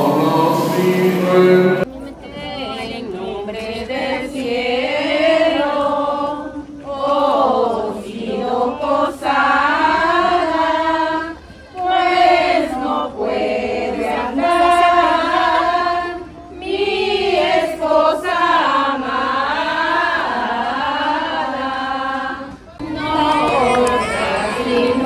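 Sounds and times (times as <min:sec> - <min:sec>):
group singing a christmas song: 0:00.0 - 0:25.0.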